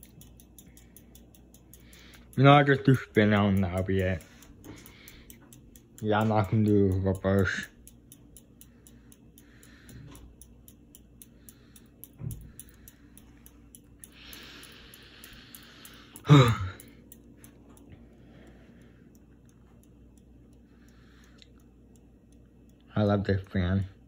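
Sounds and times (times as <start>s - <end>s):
ceiling fan motor hum: 0.0s - 24.0s
fan light ticking: 0.0s - 24.0s
breathy hiss: 11.2s - 17.0s.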